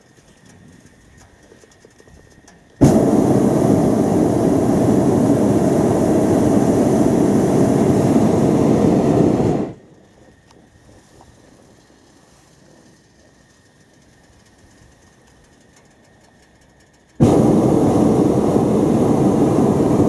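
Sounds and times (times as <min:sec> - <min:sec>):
propane burner blast: 0:02.8 - 0:09.9, 0:17.2 - 0:20.0.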